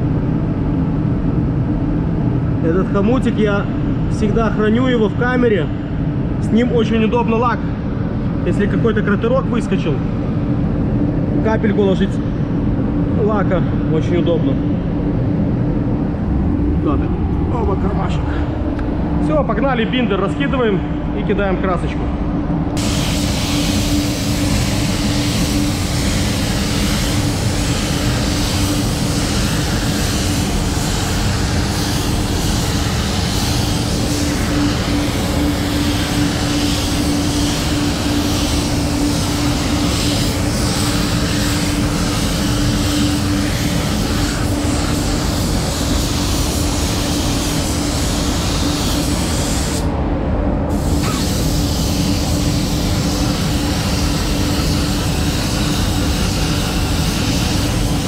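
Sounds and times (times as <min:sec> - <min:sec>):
constant rumble and hum: 0:00.0 - 0:58.0
spray gun air hissing: 0:22.8 - 0:49.9, 0:50.7 - 0:58.0.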